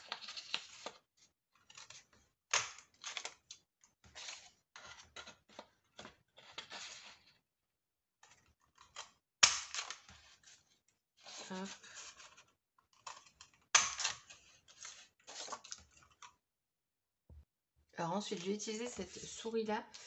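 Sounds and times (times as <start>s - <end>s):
paper rustling: 14.1s - 16.3s.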